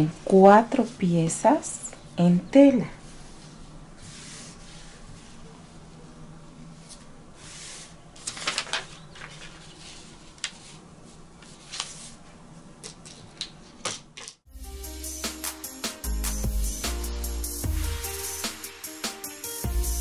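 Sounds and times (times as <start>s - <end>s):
paper and fabric rustling: 3.0s - 14.4s.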